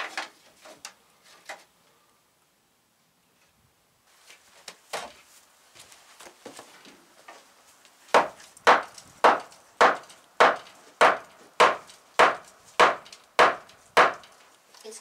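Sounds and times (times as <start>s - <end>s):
hammer striking wood: 8.1s - 14.4s.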